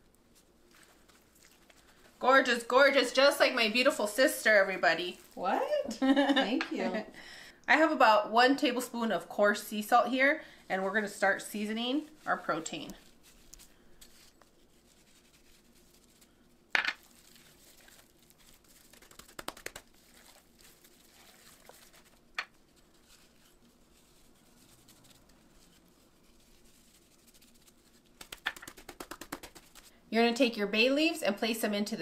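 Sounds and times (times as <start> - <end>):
hands rubbing and crinkling: 0.0 - 2.2, 2.9 - 6.9, 10.9 - 29.9.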